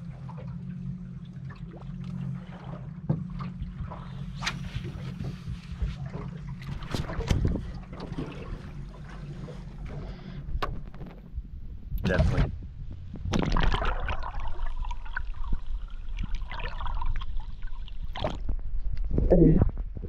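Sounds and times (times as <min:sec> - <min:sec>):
wind and water hum: 0:00.0 - 0:20.0.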